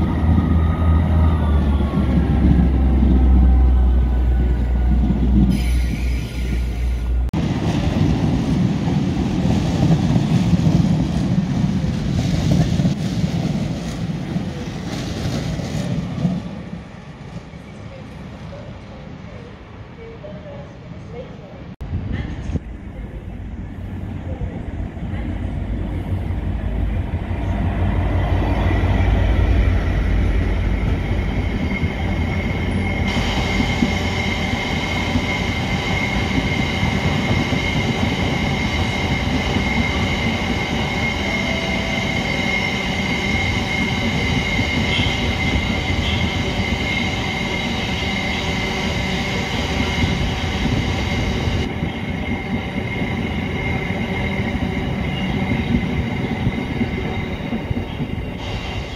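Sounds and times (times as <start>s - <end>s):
diesel locomotive engine: 0.0s - 58.9s.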